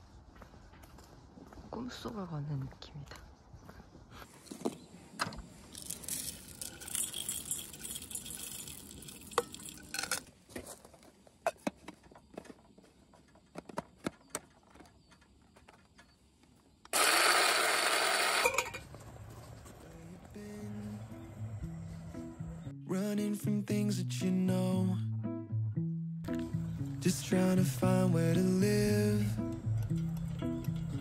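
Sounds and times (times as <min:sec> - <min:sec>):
small hard objects clinking: 0:05.6 - 0:10.8.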